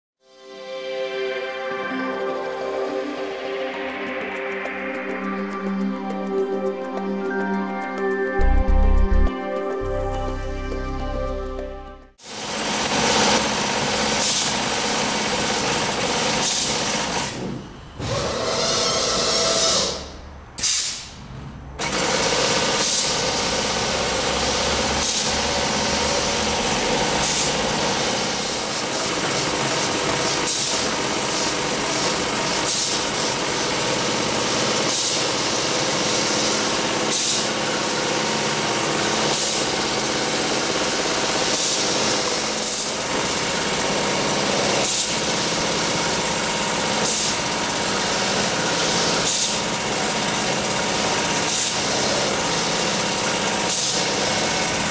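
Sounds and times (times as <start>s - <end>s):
sharp machine hiss: 18.1s - 21.2s, 22.2s - 23.6s, 24.4s - 29.2s, 30.2s - 33.4s, 34.8s - 39.8s, 40.6s - 43.8s, 44.6s - 49.8s, 53.6s - 54.5s.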